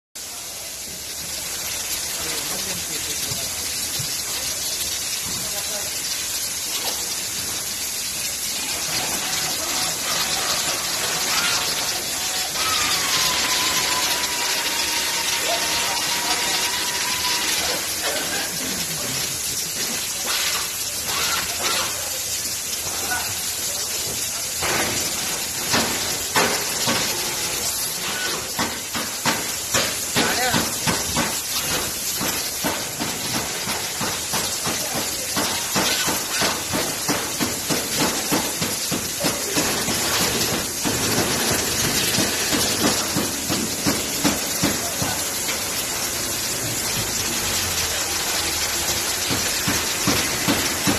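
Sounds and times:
steady workshop hissing: 0.2 - 50.9.

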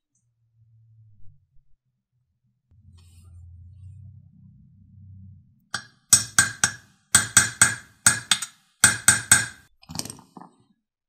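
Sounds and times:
hammer tapping a steel pin: 5.8 - 9.7.

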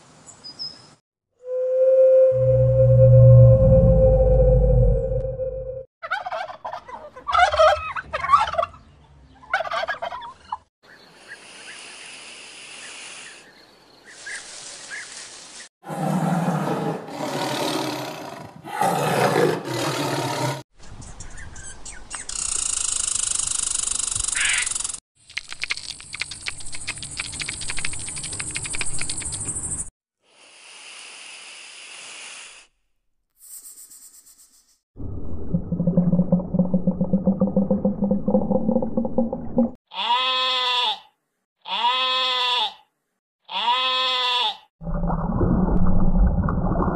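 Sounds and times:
tiger growling: 15.9 - 20.6.

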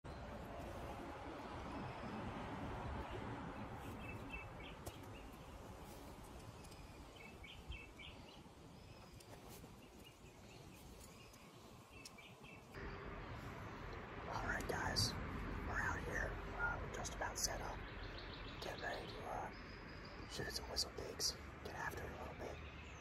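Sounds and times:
birds chirping: 0.0 - 23.0
outdoor background noise: 0.0 - 23.0.

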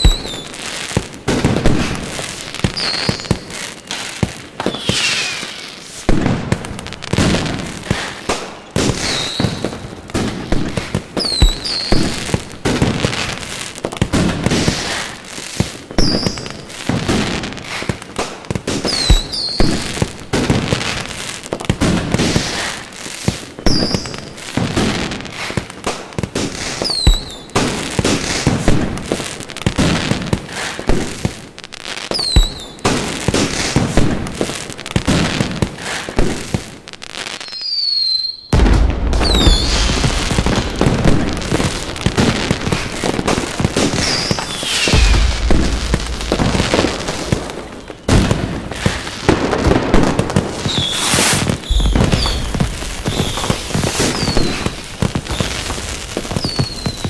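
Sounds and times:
high firework whistles: 0.0 - 0.9, 1.5 - 13.4, 14.4 - 16.6, 18.7 - 21.1, 22.2 - 24.3, 26.4 - 28.5, 32.0 - 34.1, 37.1 - 57.0
firework bangs: 0.0 - 31.5, 32.1 - 36.8, 37.9 - 57.0.

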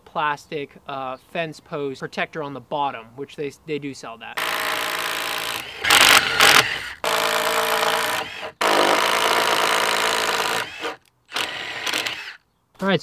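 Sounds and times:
impact driver boring through wood: 4.4 - 12.4.

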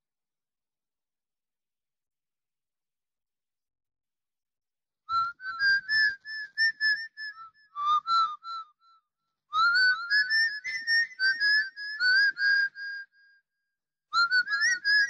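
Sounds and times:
person whistling a tune: 5.1 - 9.0, 9.6 - 13.2, 14.2 - 15.0.

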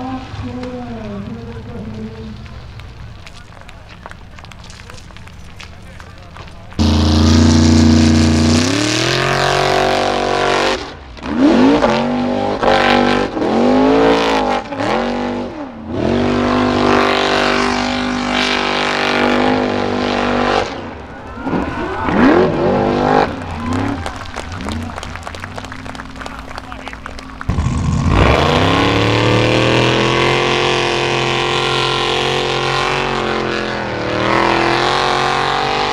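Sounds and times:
gravel and dirt spraying: 0.0 - 9.2
buggy engine revving: 0.0 - 35.9.

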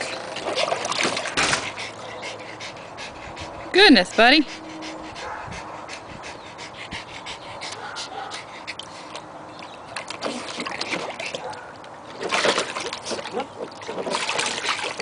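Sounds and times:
water splashing in a pool: 0.0 - 2.5, 8.0 - 15.0.

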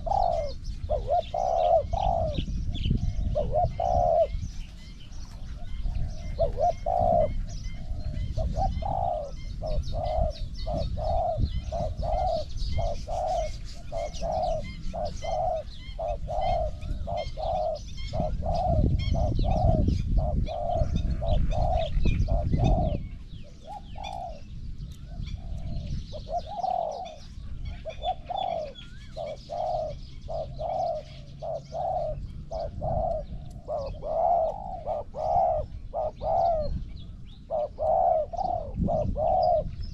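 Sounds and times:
doves cooing: 0.0 - 39.9.

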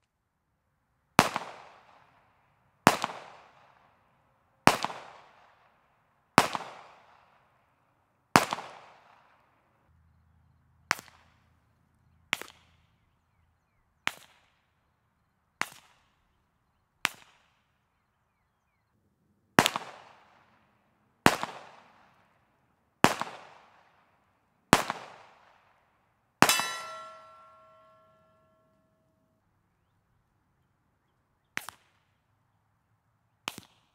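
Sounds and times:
ringing metallic tone: 26.4 - 28.8.

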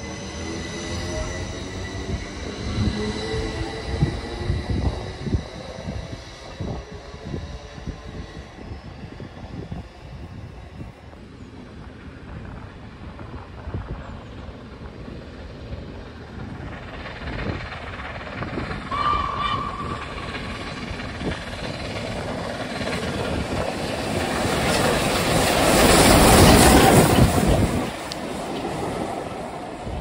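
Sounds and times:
steam locomotive passing: 0.0 - 30.0
short train whistle: 18.9 - 20.2.

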